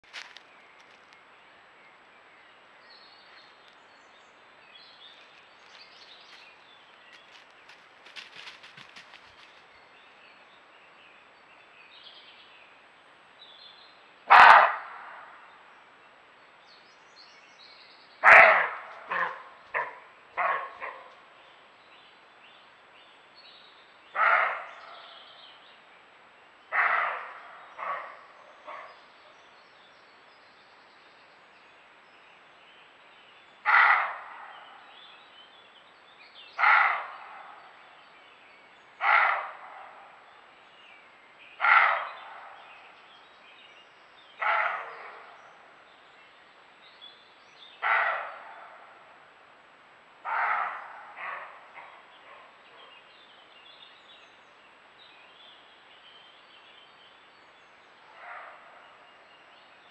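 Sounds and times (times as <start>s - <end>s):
deer barking: 14.3s - 15.0s, 18.2s - 21.2s, 33.6s - 34.3s, 36.6s - 37.5s, 39.0s - 40.0s, 41.6s - 42.5s, 44.4s - 45.3s, 47.8s - 48.8s, 50.2s - 52.9s.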